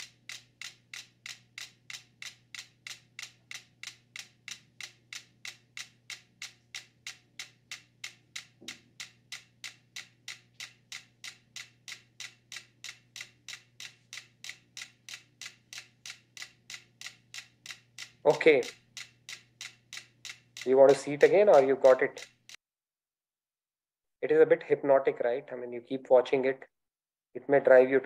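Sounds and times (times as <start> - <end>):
metronomes ticking: 0.0 - 22.6.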